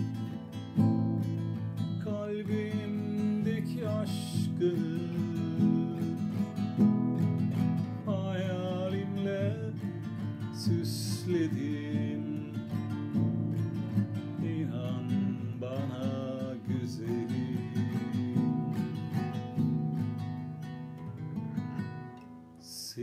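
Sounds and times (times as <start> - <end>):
person singing: 0.0 - 6.8, 7.8 - 19.4
classical guitar arpeggios: 0.0 - 23.0.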